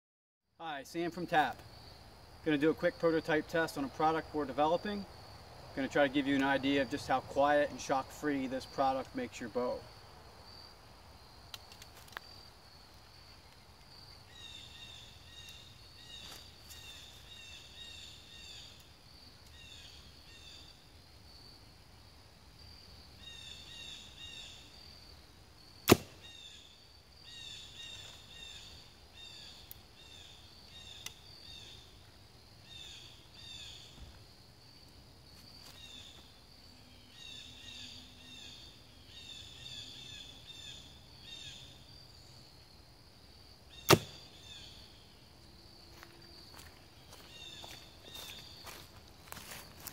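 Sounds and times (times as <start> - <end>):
bow string snap: 25.8 - 26.2, 43.9 - 44.2.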